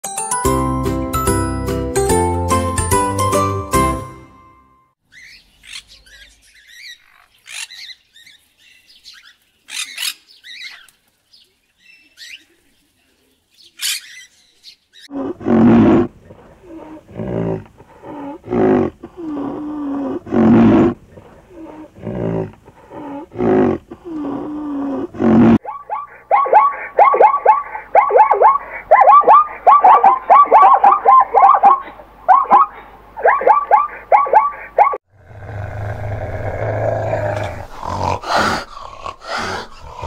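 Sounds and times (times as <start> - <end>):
birds chirping: 5.0 - 15.1, 25.6 - 35.0
low moan: 15.1 - 25.6, 35.2 - 40.0
animal giving deep calls: 15.1 - 40.0.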